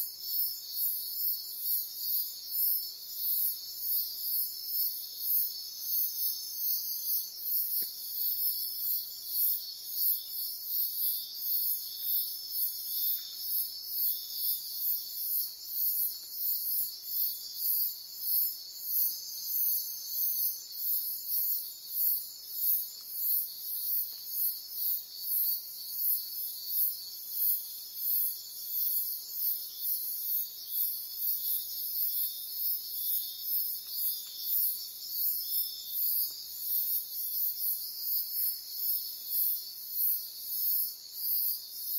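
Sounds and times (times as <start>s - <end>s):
insects droning: 0.0s - 41.9s.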